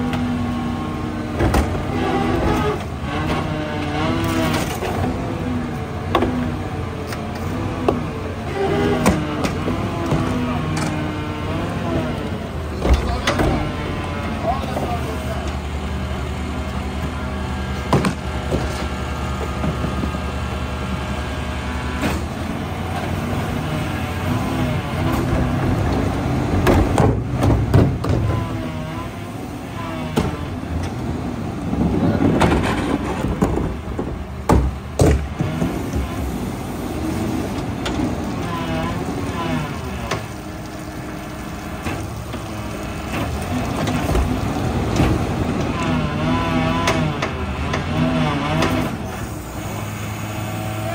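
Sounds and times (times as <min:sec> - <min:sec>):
garbage truck engine hum: 0:00.0 - 0:50.9
carts banging against hopper: 0:25.0 - 0:28.6, 0:31.7 - 0:40.3.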